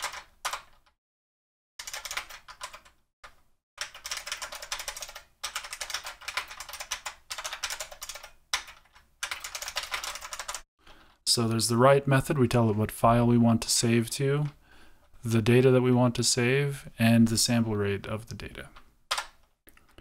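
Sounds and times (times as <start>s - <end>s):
keyboard typing: 0.0s - 0.9s, 1.8s - 10.6s, 18.7s - 20.0s.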